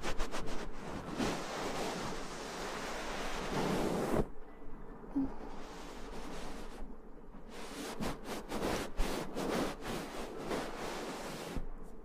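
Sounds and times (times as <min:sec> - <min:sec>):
hands rubbing at microphone: 0:00.0 - 0:04.3, 0:07.5 - 0:11.6.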